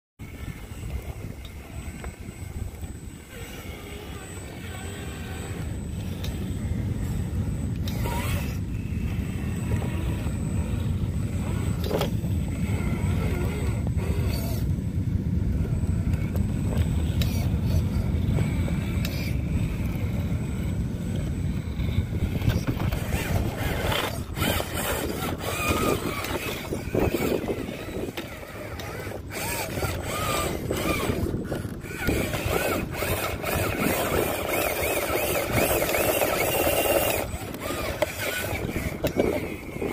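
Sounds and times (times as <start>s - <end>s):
electric motor and gearbox whining: 0.2s - 39.9s
tyres and chassis clicking on rock: 9.3s - 14.8s, 15.6s - 39.9s.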